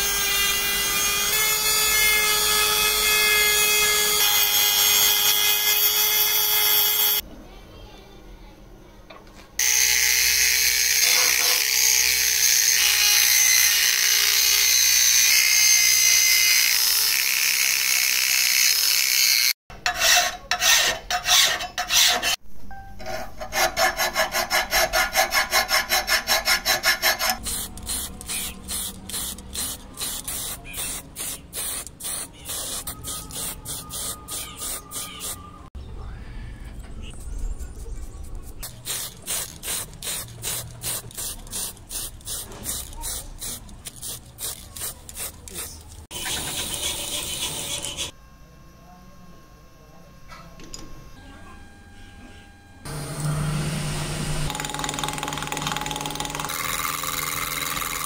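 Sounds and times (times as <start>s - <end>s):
power tool grinding metal: 9.6s - 22.4s, 23.0s - 31.0s, 46.1s - 48.2s
hand file rasping on metal: 19.7s - 22.4s, 23.0s - 31.0s.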